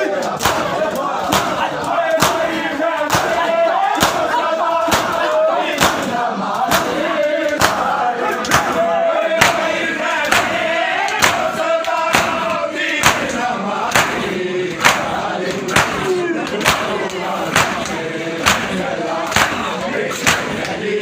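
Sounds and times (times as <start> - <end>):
men chanting in unison: 0.0 - 21.0
hands slapping on chests: 0.2 - 3.4, 4.0 - 20.8.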